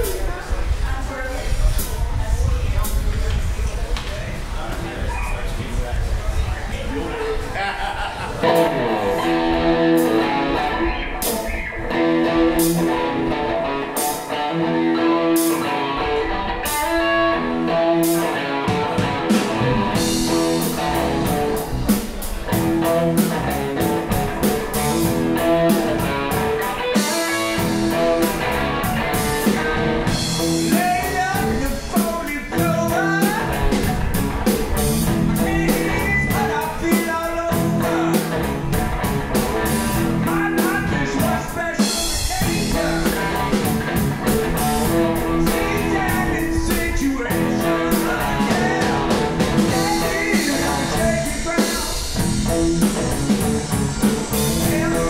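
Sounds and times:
electric bass: 0.0 - 55.0
electric guitar: 5.9 - 55.0
drum kit beat: 8.4 - 55.0.

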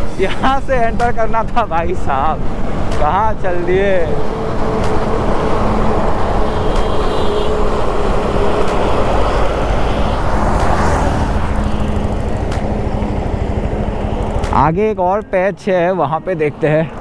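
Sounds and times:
tyre and road noise: 0.0 - 17.0
motorcycle engine cruising: 3.6 - 16.0.

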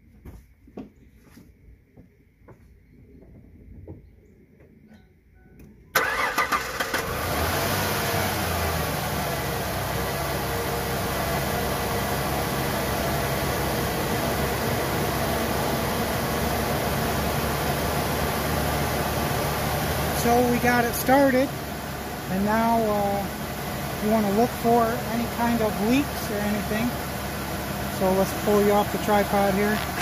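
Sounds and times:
engine cranking and idling: 5.9 - 30.0.

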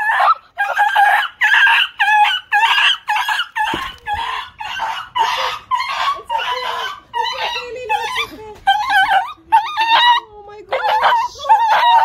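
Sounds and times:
dog yelping: 0.0 - 12.0.

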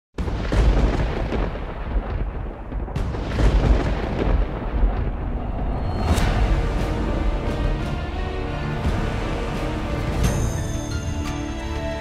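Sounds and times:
sharp cracks and booms: 0.2 - 8.2
deep continuous rumble: 2.0 - 10.2.

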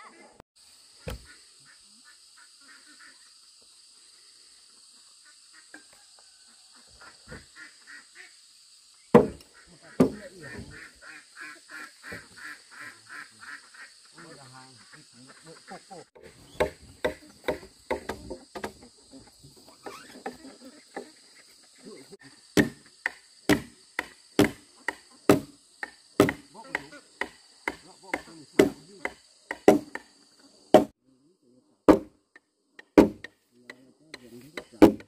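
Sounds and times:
high insect drone: 0.6 - 35.0
hand tool striking wood: 1.0 - 1.3, 9.2 - 10.3, 16.2 - 18.8, 22.6 - 30.1, 30.7 - 30.9, 31.9 - 32.2, 32.8 - 35.0.

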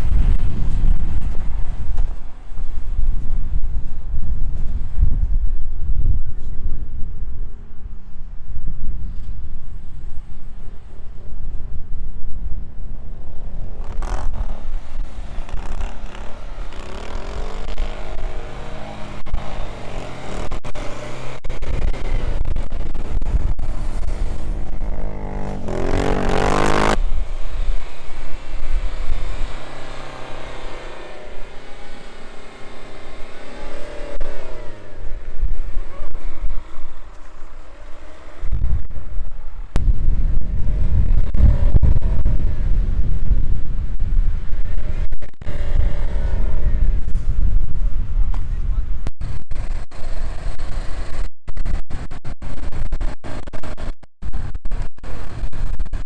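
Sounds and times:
wind noise on microphone: 0.0 - 56.0
car engine revving: 13.5 - 39.8.

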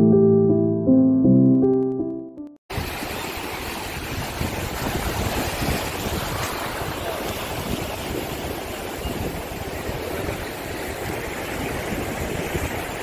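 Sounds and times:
ocean surf breaking waves: 2.7 - 13.0.

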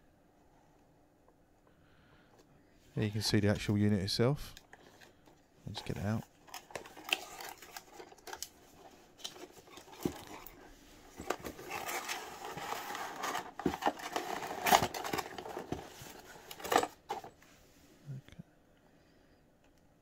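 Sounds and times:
cardboard rustling: 4.7 - 17.4.

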